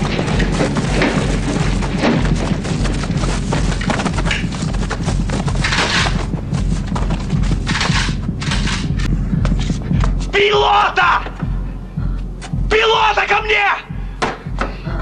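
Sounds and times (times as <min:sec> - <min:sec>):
low pulsing rumble: 0:00.0 - 0:12.8
film score music: 0:00.0 - 0:15.0.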